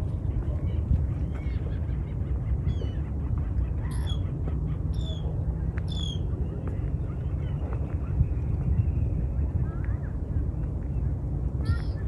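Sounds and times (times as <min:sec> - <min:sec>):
steady low rumble: 0:00.0 - 0:12.0
waterbirds calling: 0:00.1 - 0:08.1.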